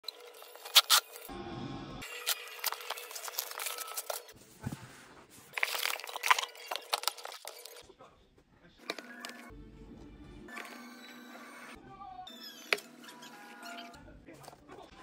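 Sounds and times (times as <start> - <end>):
packing paper crinkling: 2.2 - 4.4, 5.4 - 7.8
cardboard rustling: 2.6 - 7.8.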